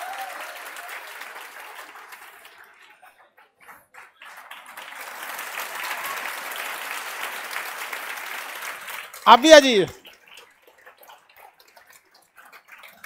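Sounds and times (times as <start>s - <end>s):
audience clapping: 0.0s - 13.0s.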